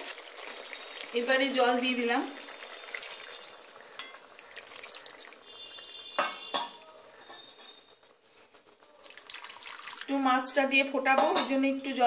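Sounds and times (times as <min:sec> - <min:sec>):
metal knocks on a pan: 0:11.1 - 0:11.6.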